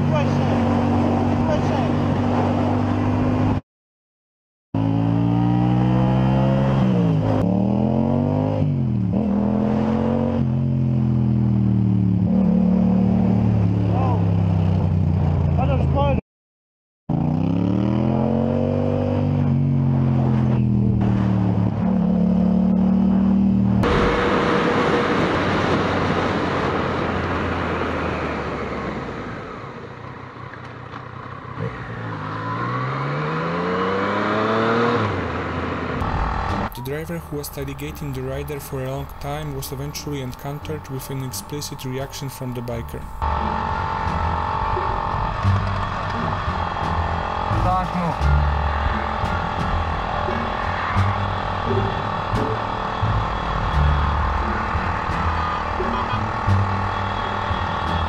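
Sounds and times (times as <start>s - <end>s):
wind and road rush: 0.0s - 3.6s, 4.8s - 16.2s, 17.1s - 58.0s
motorcycle engine revving: 4.8s - 15.7s, 17.1s - 28.3s, 30.8s - 36.7s, 43.1s - 58.0s.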